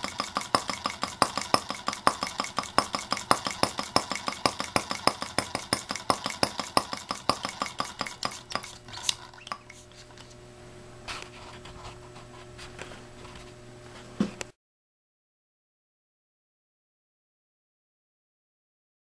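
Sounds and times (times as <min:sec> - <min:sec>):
small engine ticking clatter: 0:00.0 - 0:09.6.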